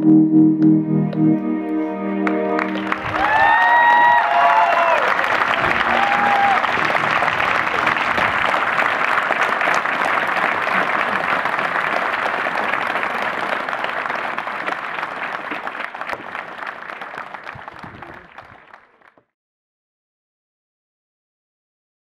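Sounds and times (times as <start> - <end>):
audience clapping: 2.2 - 19.3.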